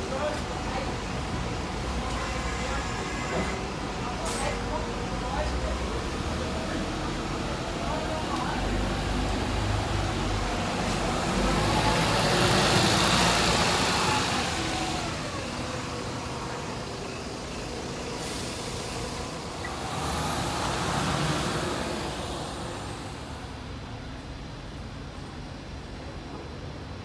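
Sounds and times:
bus engine revving: 6.0 - 25.3
vehicle passing on wet road: 8.8 - 15.3, 18.6 - 23.6.

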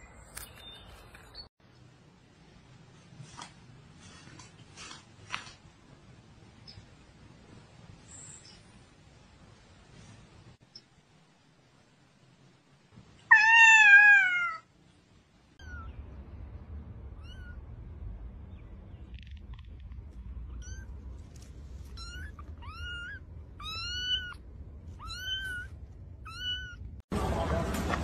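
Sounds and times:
adult cat meowing: 13.3 - 14.7.

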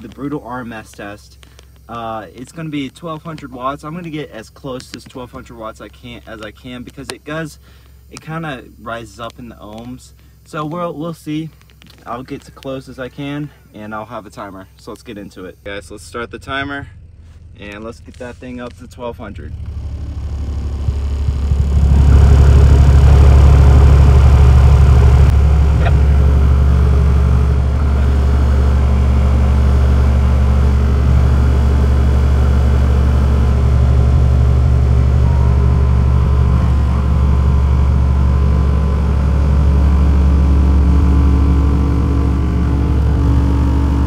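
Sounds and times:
subwoofer low bass tone: 15.5 - 44.0.

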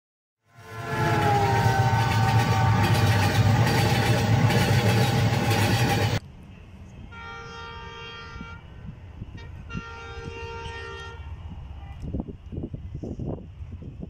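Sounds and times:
locomotive horn blasts: 0.5 - 6.1, 7.1 - 11.3
train coaches clattering: 0.7 - 6.2.

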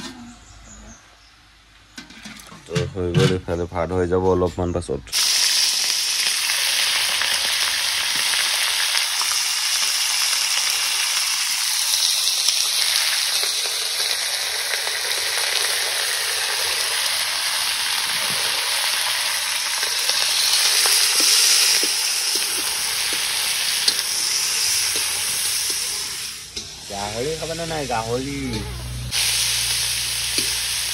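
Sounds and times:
meat sizzling in a wok: 5.1 - 30.9
metal spatula scraping: 20.1 - 26.8.

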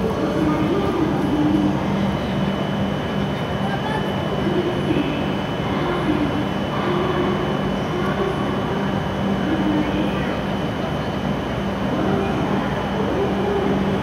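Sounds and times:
train hum with high whine: 0.0 - 14.0.

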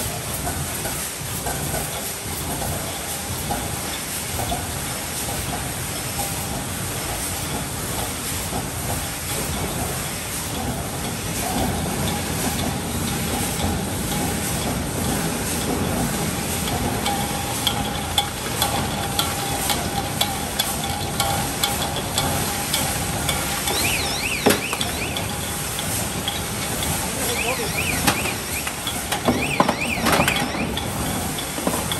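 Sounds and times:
machine hiss and noise: 0.0 - 31.9
wavering high tone: 23.6 - 25.5, 27.0 - 31.0.

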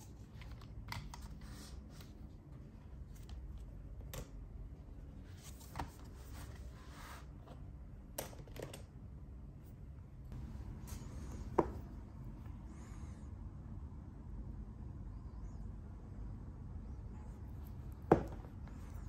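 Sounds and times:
pens tapping and clicking on desk: 18.1 - 18.6.

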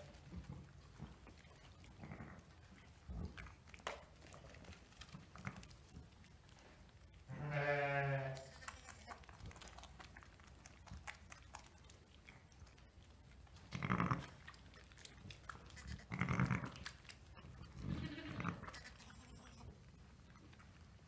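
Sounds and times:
faint licking: 0.0 - 7.3, 8.3 - 21.0
straw rustling: 0.0 - 17.8
sheep bleating: 7.3 - 8.9, 17.8 - 19.6.

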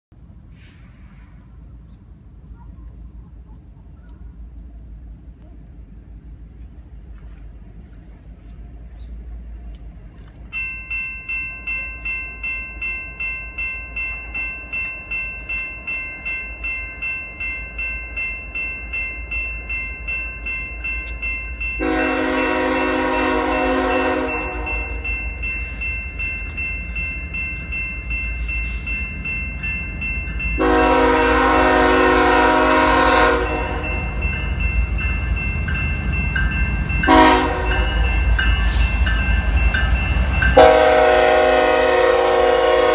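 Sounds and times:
low train rumble: 0.1 - 42.9
electronic crossing bell ringing: 10.4 - 42.0
locomotive horn blasts: 21.8 - 25.1, 30.6 - 34.0, 37.1 - 38.0, 40.6 - 42.9.

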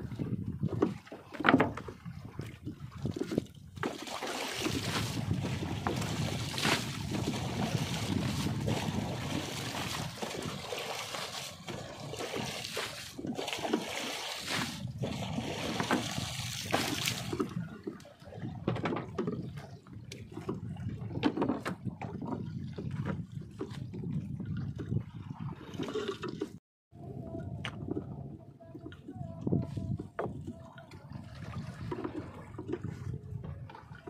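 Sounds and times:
water trickling and splashing: 0.0 - 26.6, 27.2 - 34.0.

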